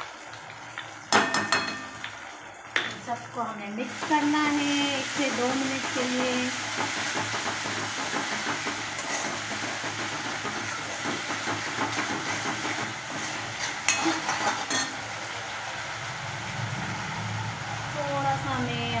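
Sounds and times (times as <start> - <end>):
spoon clanking on pan: 1.1 - 2.2, 13.6 - 15.0.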